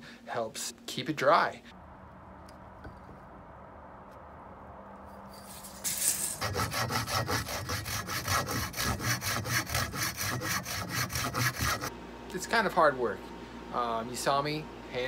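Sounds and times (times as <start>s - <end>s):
hand saw cutting wood: 5.9s - 11.9s.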